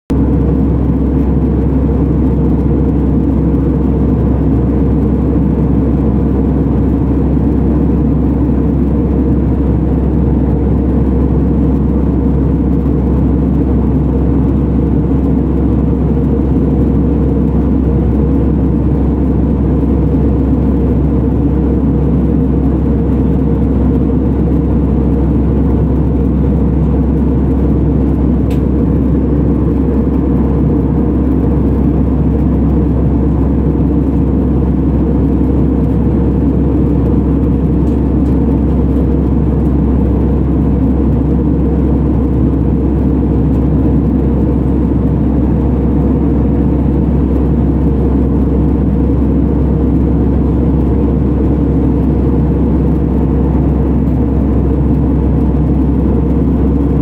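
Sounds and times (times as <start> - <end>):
airliner cabin engine rush: 0.1 - 57.0.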